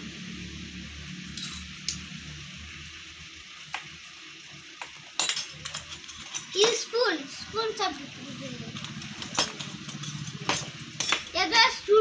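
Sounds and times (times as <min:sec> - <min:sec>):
low background hum: 0:00.0 - 0:12.0
toy cookware clicks: 0:05.2 - 0:06.9.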